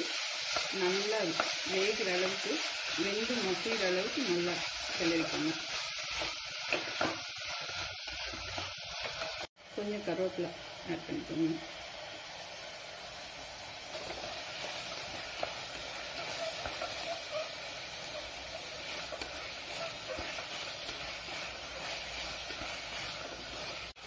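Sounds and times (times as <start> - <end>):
masala sizzling in oil: 0.0 - 24.0
wooden spatula stirring: 14.0 - 24.0.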